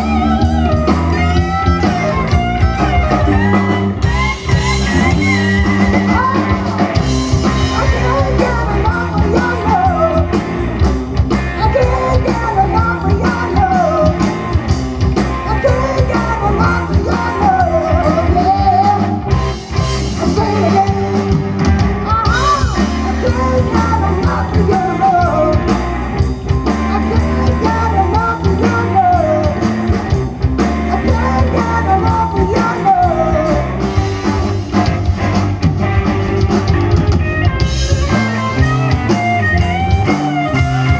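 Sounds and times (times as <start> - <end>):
bass guitar: 0.0 - 40.9
drum kit: 0.0 - 40.9
electric guitars: 0.0 - 40.9
man singing: 3.0 - 10.5, 11.5 - 14.4, 15.2 - 19.4, 20.1 - 21.4, 22.0 - 25.8, 26.7 - 34.0.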